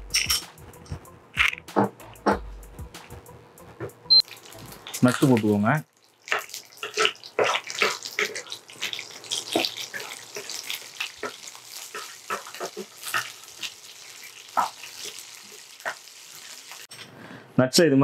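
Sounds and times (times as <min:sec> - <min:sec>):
nuts sizzling in hot fat: 0:04.2 - 0:16.9
spatula clicking and scraping: 0:06.2 - 0:16.0.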